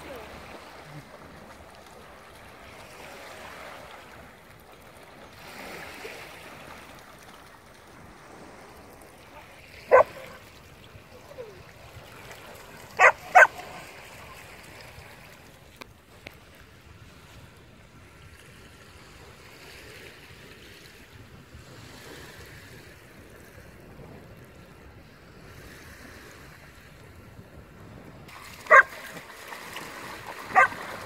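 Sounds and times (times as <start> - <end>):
shallow water washing on shore: 0.0 - 31.0
dog barking: 9.9 - 10.4, 13.0 - 13.9, 28.7 - 29.0, 30.5 - 30.8.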